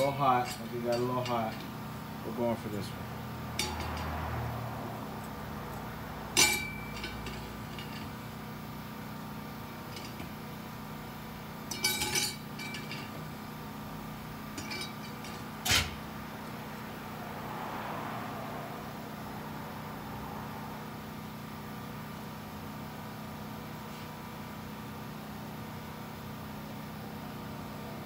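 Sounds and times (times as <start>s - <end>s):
metal parts clinking: 0.0s - 1.7s, 3.5s - 4.2s, 6.4s - 8.2s, 9.9s - 10.3s, 11.7s - 13.2s, 14.6s - 16.0s
low background hum: 0.0s - 21.0s.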